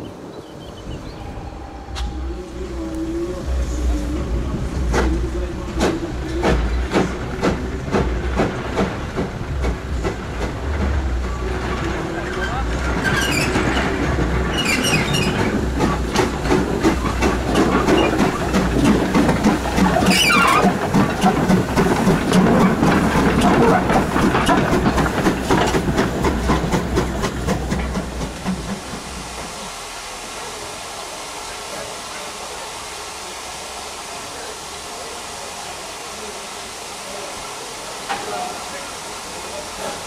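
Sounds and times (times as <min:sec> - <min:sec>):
steam locomotive exhaust beats: 0:00.7 - 0:40.0
high falling squeal: 0:00.8 - 0:03.1
steam hiss: 0:00.8 - 0:40.0.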